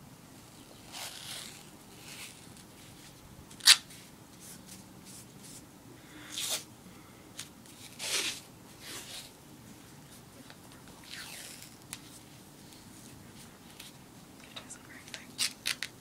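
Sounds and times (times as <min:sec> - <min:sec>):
athletic tape ripping: 0:00.8 - 0:04.0, 0:06.3 - 0:06.7, 0:07.7 - 0:09.3, 0:11.0 - 0:12.2, 0:15.4 - 0:16.0.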